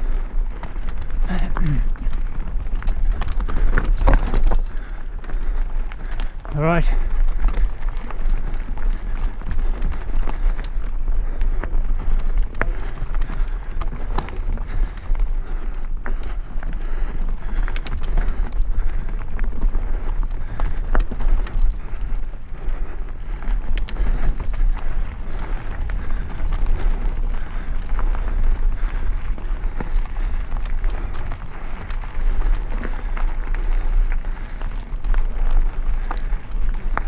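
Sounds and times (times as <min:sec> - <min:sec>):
bike rattling: 0:00.0 - 0:37.0
bike tyres crunching over stones: 0:00.0 - 0:37.0
bike knocking on rocks: 0:00.5 - 0:21.8.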